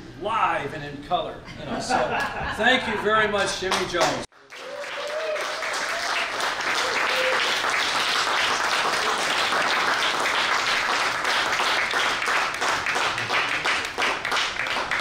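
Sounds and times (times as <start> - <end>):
audience applauding: 3.7 - 15.0.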